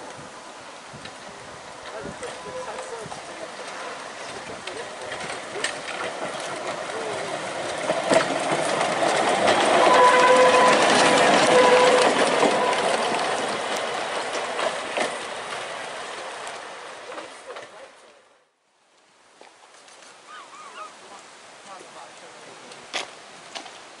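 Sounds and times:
wheels clicking over rail joints: 0.8s - 18.3s, 21.6s - 24.0s
high wheel squeal: 9.7s - 13.3s.

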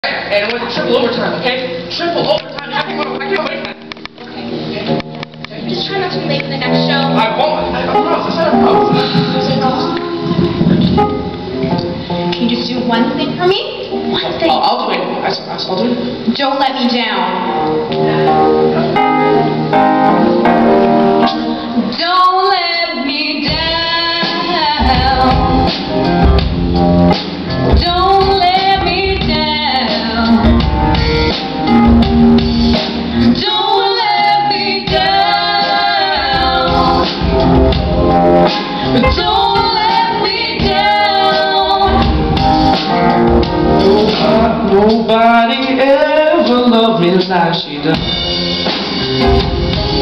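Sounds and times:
live band playing pop song: 0.2s - 50.0s
person singing: 33.2s - 37.6s, 43.6s - 47.2s.

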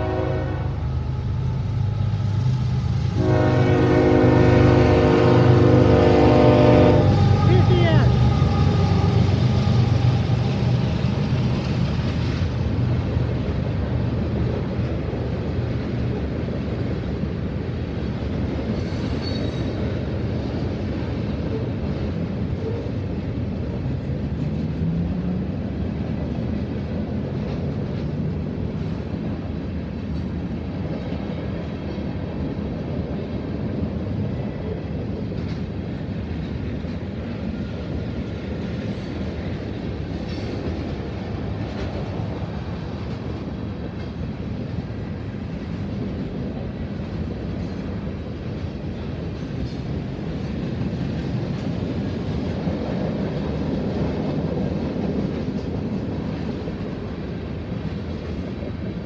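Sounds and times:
freight cars rumbling past: 0.0s - 14.2s.

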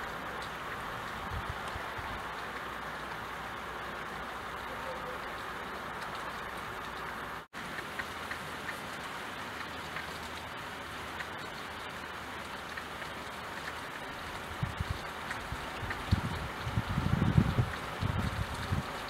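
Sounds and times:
rain on a window: 0.0s - 19.0s.

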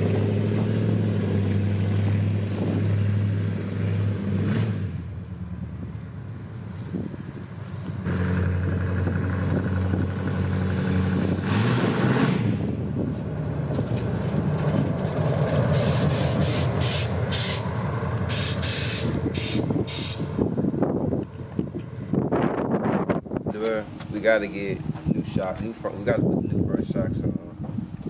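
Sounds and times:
loud rough open exhaust: 0.0s - 28.0s
hissing bursts: 15.7s - 17.7s, 18.3s - 20.3s.

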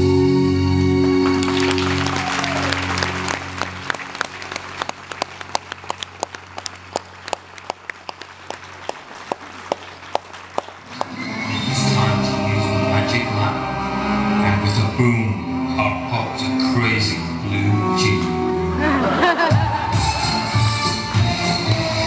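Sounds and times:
performance music: 0.0s - 22.0s
audience applause: 1.0s - 11.2s, 18.8s - 20.9s
rhythmic clapping in unison: 1.1s - 11.3s, 19.5s - 22.0s.

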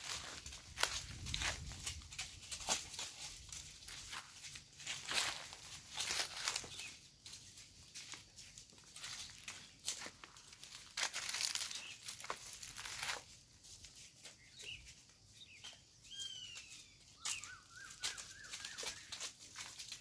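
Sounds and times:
goats crunching dry leaves: 0.0s - 20.0s
bird chirping: 6.4s - 7.1s, 14.4s - 19.2s.

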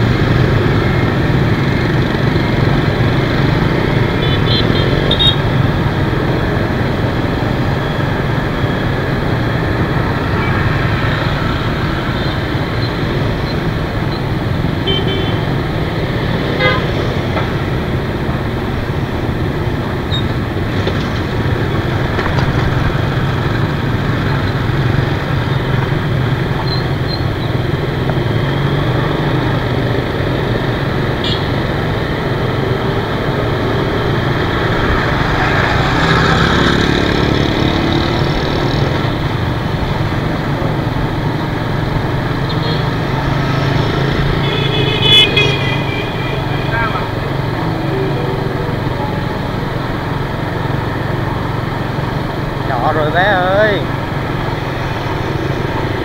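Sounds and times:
scooter engine and road rumble: 0.0s - 56.0s
motorbike horns tooting: 4.2s - 5.4s, 14.8s - 15.6s, 16.5s - 17.0s, 31.2s - 31.6s, 44.2s - 47.2s.

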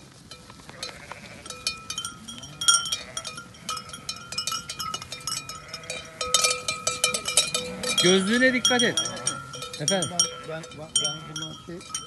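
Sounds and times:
sheep bells clanking: 0.0s - 12.0s.

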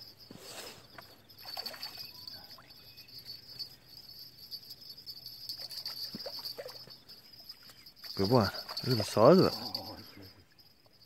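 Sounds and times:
crickets chirring: 0.0s - 11.0s
water splashing and sloshing: 0.7s - 2.6s, 5.5s - 9.3s.

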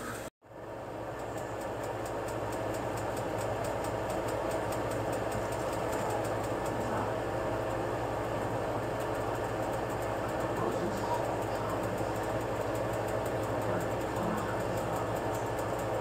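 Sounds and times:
machine hum: 0.0s - 16.0s
faint ticking: 8.8s - 16.0s.

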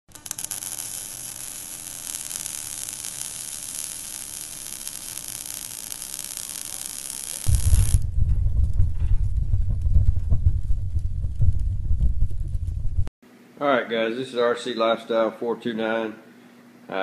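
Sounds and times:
sparks hissing and crackling: 0.1s - 8.2s
loud low rumble: 7.5s - 13.1s.

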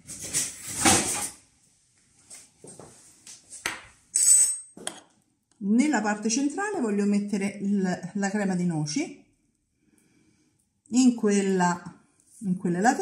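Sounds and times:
metal spoon clinking: 4.1s - 5.1s.

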